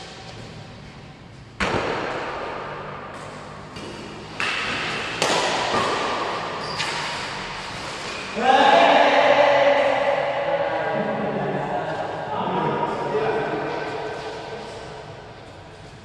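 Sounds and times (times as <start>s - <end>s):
rackets hitting shuttlecock: 1.6s - 7.4s.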